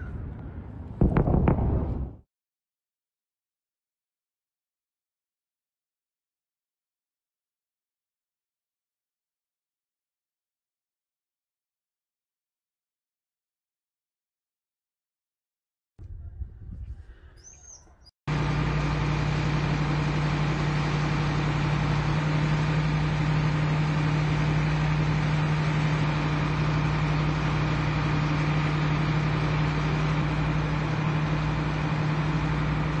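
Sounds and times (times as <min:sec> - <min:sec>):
vehicle engine humming: 0:00.0 - 0:02.2, 0:18.3 - 0:33.0.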